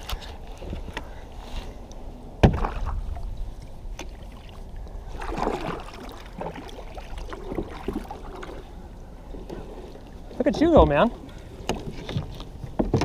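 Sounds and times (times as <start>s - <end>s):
steady low rumble: 0.0s - 11.7s
paddle splashing in water: 2.4s - 3.2s, 3.9s - 13.0s.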